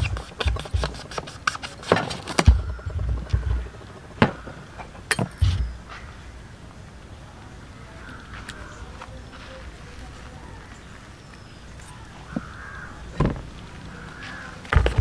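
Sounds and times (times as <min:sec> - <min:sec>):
knife chopping on plastic board: 0:00.0 - 0:02.7
handling noises: 0:00.0 - 0:06.2, 0:08.3 - 0:15.0.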